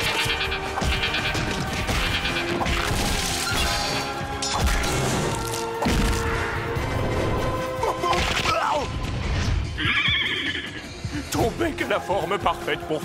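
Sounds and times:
horse whinny: 9.8s - 11.0s
background music score: 10.8s - 13.0s.

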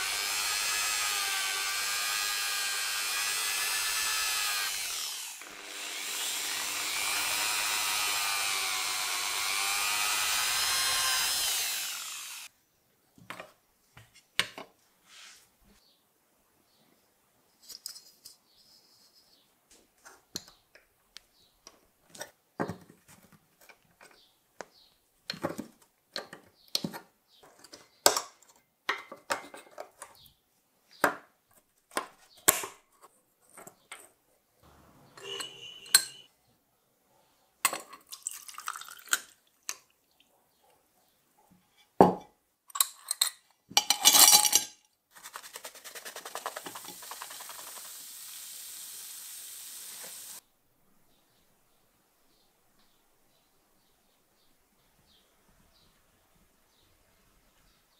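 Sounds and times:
metal parts clinking on glass: 42.7s - 44.8s
steady hiss: 46.0s - 50.4s.

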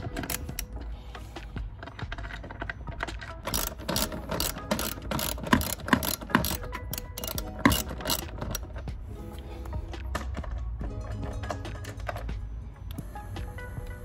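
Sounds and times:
ratchet wrench clicking: 0.0s - 0.8s, 1.8s - 8.9s.

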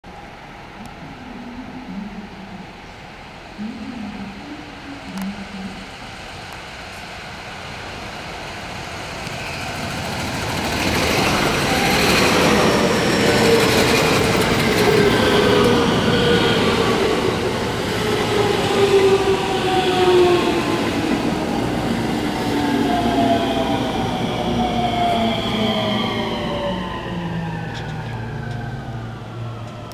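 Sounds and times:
wheels rumbling on rail: 0.1s - 29.9s.

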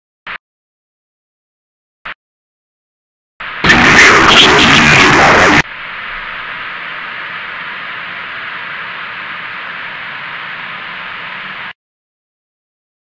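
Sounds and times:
television static hiss: 3.4s - 11.8s.

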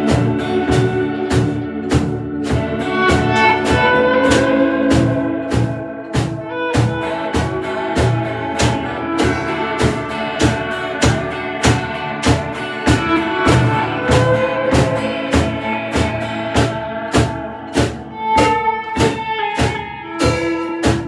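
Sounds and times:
drum kit beat: 0.0s - 21.0s
electric guitars playing melody: 0.0s - 21.0s.

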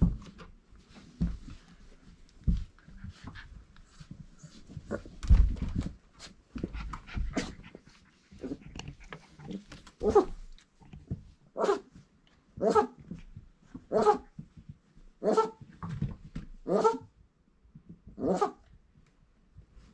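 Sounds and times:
puppies scuffling with low thumps: 0.0s - 11.4s, 13.0s - 16.6s.

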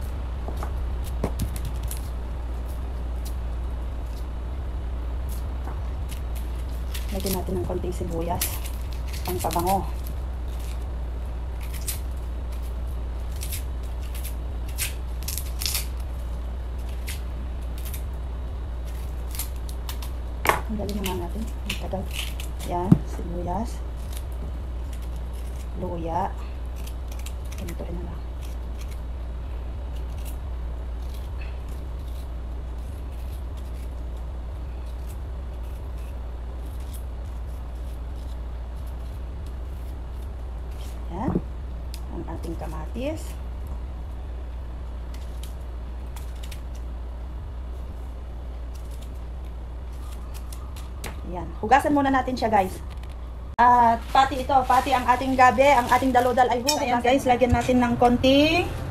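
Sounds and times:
low hum: 0.0s - 58.9s
knife scraping onion skin: 5.2s - 18.2s, 18.8s - 23.2s, 23.8s - 29.1s, 29.8s - 41.2s, 45.0s - 47.0s, 47.7s - 51.2s.

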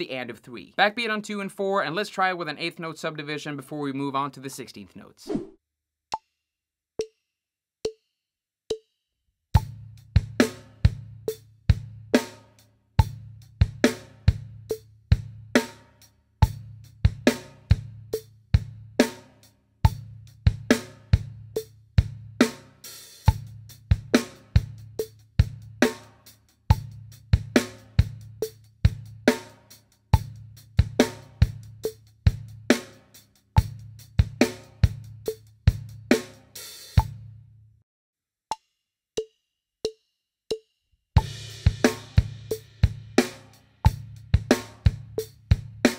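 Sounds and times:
drum kit rock groove: 9.6s - 37.2s, 41.2s - 45.9s.

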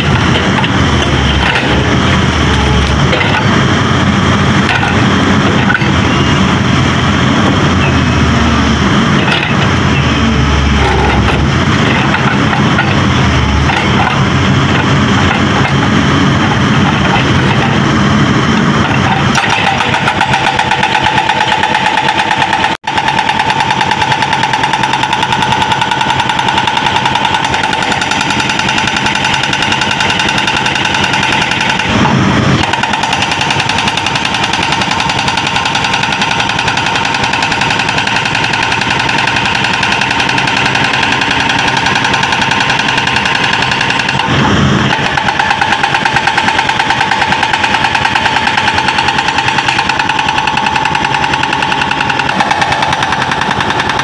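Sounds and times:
hydraulic breaker hammer pounding: 0.0s - 7.8s, 9.0s - 54.0s
diesel engine running: 0.0s - 54.0s
steady ringing tone: 19.7s - 31.9s, 45.0s - 54.0s.

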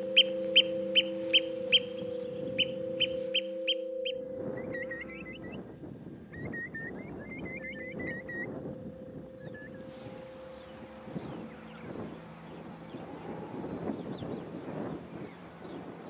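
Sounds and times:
curlew bubbling call: 0.0s - 5.6s, 6.4s - 16.0s
oystercatcher piping calls: 0.0s - 5.6s
wind noise: 0.0s - 16.0s.

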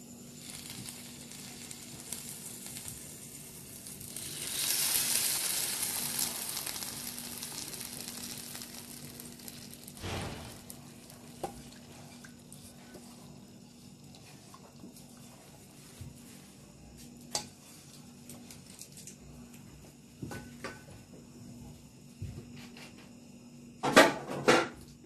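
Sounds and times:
sauce sizzling on hot tray: 0.0s - 14.0s.

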